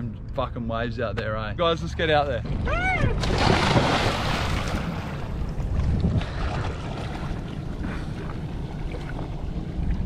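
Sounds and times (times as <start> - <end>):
water splashing: 2.3 - 10.0
wind buffeting microphone: 2.4 - 10.0.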